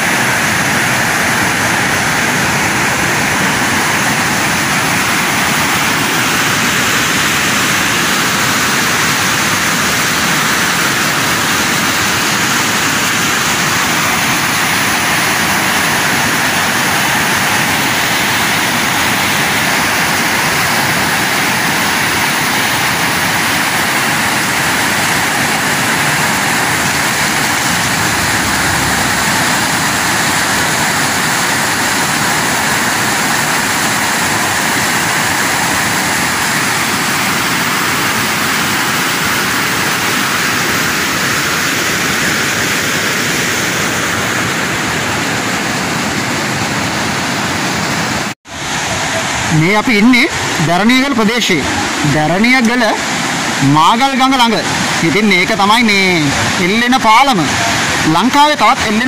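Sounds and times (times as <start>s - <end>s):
river rapids roaring: 0.0s - 59.0s.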